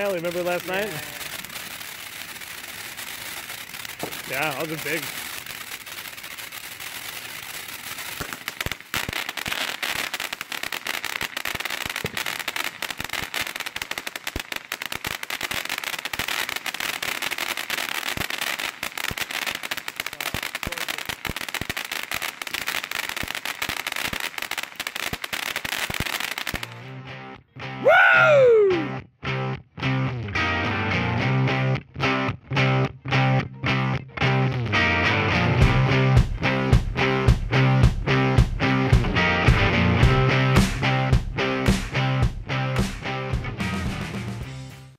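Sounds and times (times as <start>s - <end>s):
firework fountain hissing sparks: 0.0s - 26.9s
firework crackling: 0.0s - 27.0s, 27.8s - 28.9s, 35.4s - 44.9s.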